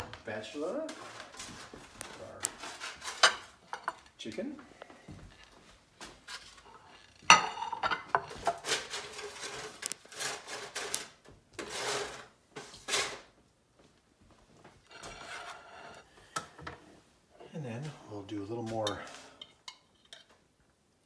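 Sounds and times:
metal spatula scraping pan: 0.9s - 4.1s, 6.3s - 13.2s, 14.9s - 16.8s
spatula clattering on plates: 2.5s - 4.1s, 6.8s - 12.3s, 18.8s - 20.4s.

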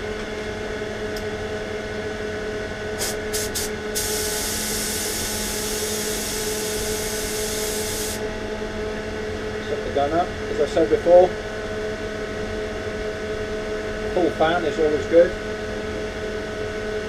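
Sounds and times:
extractor fan hum: 0.0s - 17.0s
compressed air hissing: 3.0s - 8.2s.

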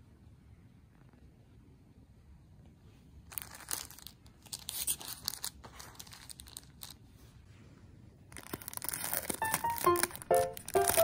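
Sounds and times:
plastic bag crinkling: 3.3s - 7.1s, 8.3s - 11.0s.

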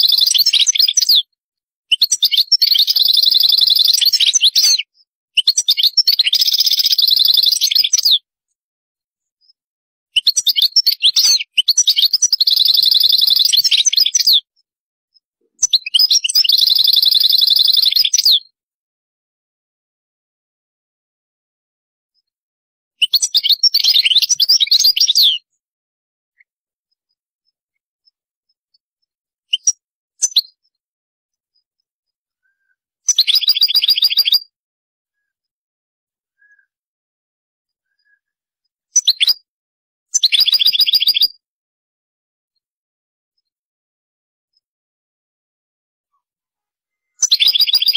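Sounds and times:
goldfinch twittering song: 0.0s - 8.2s, 10.2s - 18.6s, 23.0s - 25.6s, 26.9s - 30.8s, 31.5s - 34.5s, 37.7s - 39.5s, 40.1s - 41.4s, 46.9s - 47.9s
bird chirps and trill: 0.0s - 8.3s, 9.3s - 18.6s, 23.0s - 25.6s, 26.4s - 30.8s, 31.5s - 35.5s, 36.3s - 36.8s, 37.7s - 39.5s, 40.1s - 41.4s, 46.1s - 47.9s.

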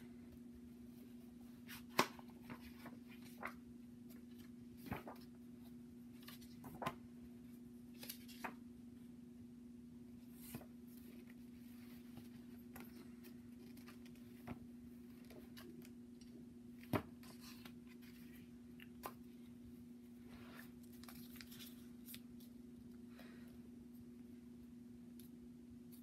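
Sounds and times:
steady low hum: 0.0s - 26.0s
paper rustling: 1.6s - 7.1s, 20.4s - 22.6s.

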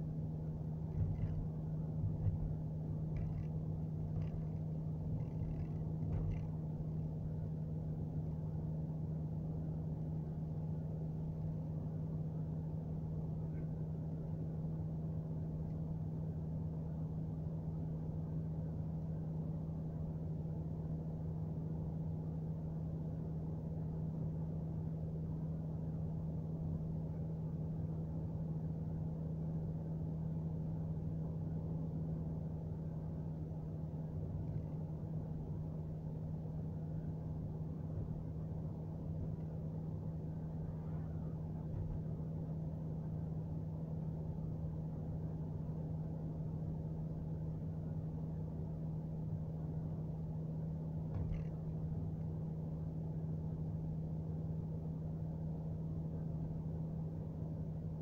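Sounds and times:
car cabin engine and tyre drone: 0.5s - 7.2s.

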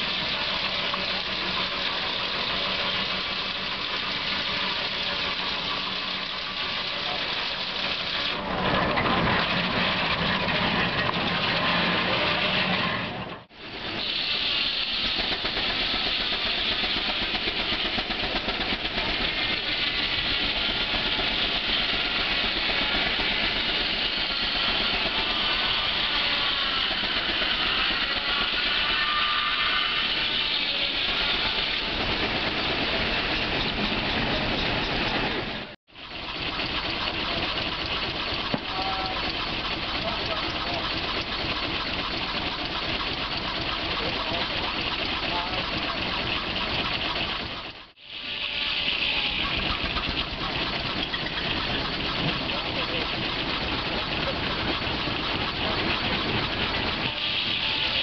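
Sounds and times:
steam traction engine running: 0.0s - 58.0s
loud hiss of steam: 13.6s - 35.4s, 47.9s - 54.8s, 55.6s - 58.0s.

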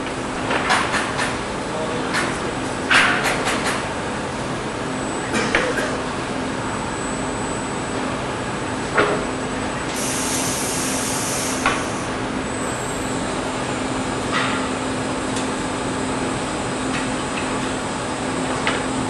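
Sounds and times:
compressed air hiss: 9.9s - 12.1s.

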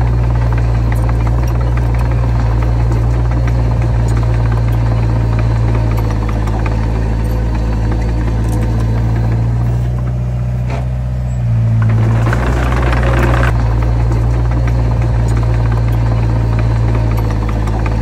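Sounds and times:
heavy diesel engine running: 0.0s - 18.0s
loud rasping noise: 11.7s - 18.0s.

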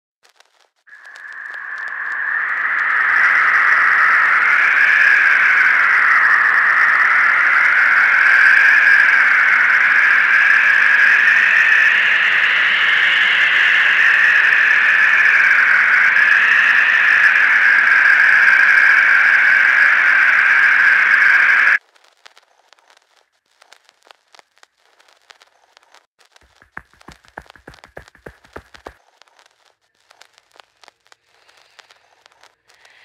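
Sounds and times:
hiss-like drone: 0.9s - 21.8s.

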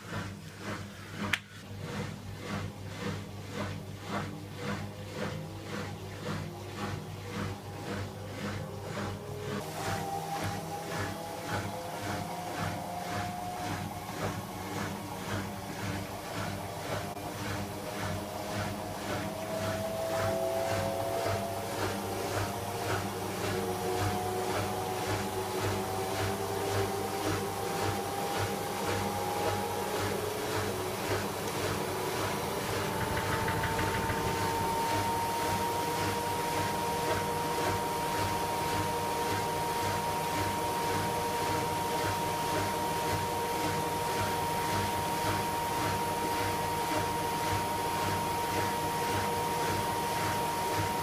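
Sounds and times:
low pulsing hum: 0.0s - 37.2s
washer drum spinning: 0.0s - 51.0s.

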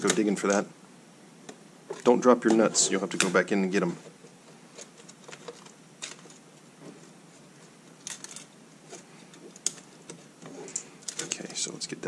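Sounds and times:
hand rustling among wires: 1.4s - 12.0s.

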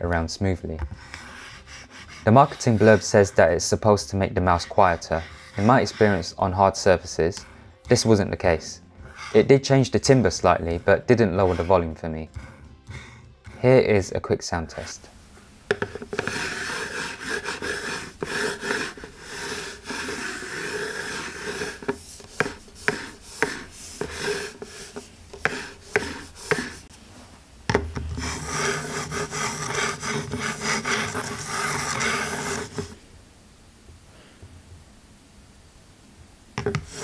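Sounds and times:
mouse scraping on hard desk: 1.0s - 3.6s, 4.5s - 6.4s, 9.0s - 12.5s, 15.7s - 26.9s, 28.1s - 33.0s, 36.6s - 37.0s.

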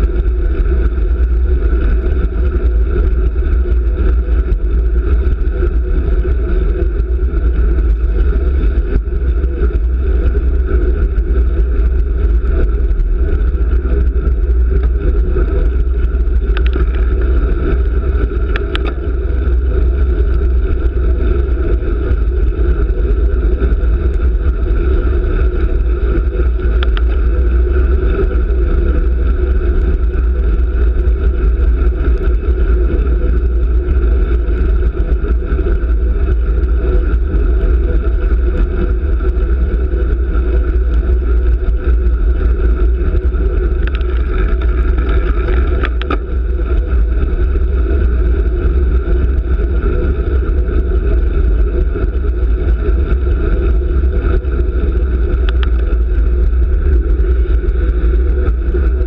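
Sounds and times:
road vibration: 0.0s - 59.0s
wind rumble on microphone: 0.0s - 59.0s.

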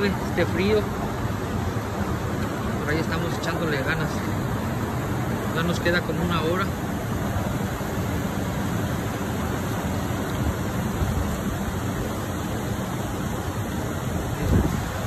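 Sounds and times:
river water rushing over rapids: 0.0s - 15.0s.

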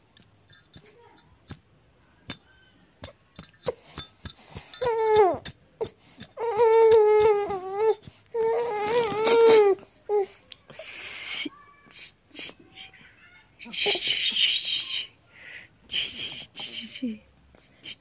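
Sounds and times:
baby crying: 4.7s - 10.3s.

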